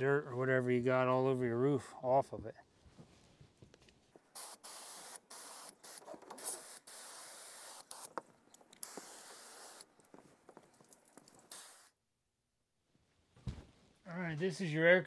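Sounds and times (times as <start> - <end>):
water spraying from hose nozzle: 4.4 - 8.2, 8.8 - 9.9, 10.9 - 11.9.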